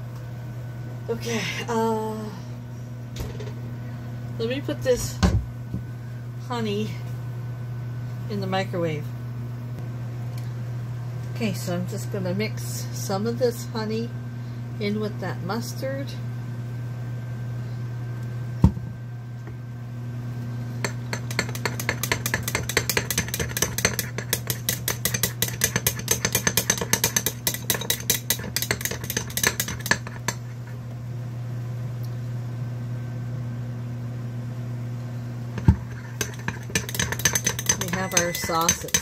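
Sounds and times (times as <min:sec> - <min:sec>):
microwave humming: 0:00.0 - 0:39.0
spoon clinking against bowl: 0:36.2 - 0:39.0.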